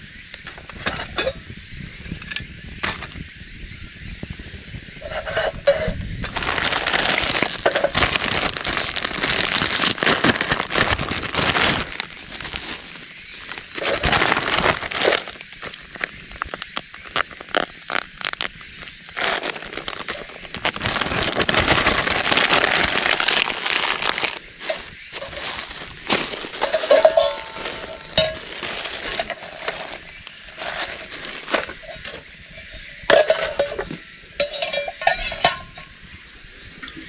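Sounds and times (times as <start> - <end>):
metal cups clinking: 0.8 - 1.5, 5.0 - 6.0, 6.6 - 8.2, 23.2 - 30.0, 31.5 - 36.0
plastic packet crinkling: 5.8 - 33.9.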